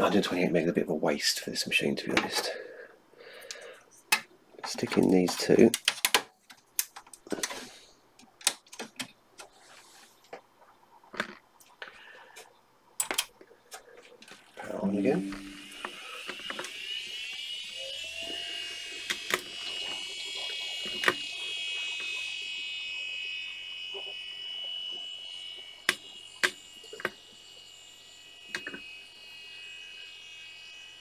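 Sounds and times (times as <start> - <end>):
low hum: 13.4 - 31.0
computer drive and fan whine: 14.6 - 31.0.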